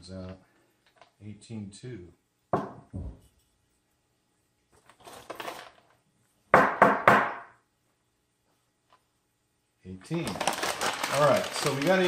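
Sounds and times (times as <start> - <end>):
coffee beans rattling in a cup: 4.8 - 5.9, 10.2 - 12.0.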